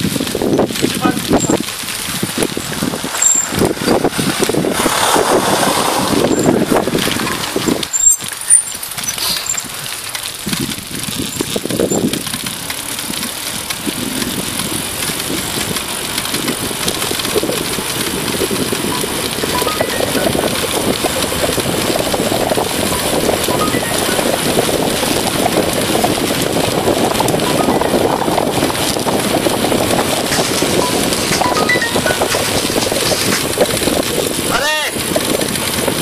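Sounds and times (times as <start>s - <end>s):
bicycle rushing noise on road: 0.0s - 36.0s
wind buffeting microphone: 0.0s - 36.0s
short high squeaks: 3.1s - 4.0s, 7.2s - 9.8s.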